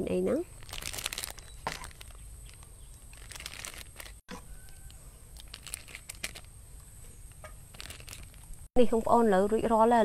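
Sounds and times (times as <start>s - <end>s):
plastic bag crinkling: 0.5s - 6.6s, 7.3s - 8.7s.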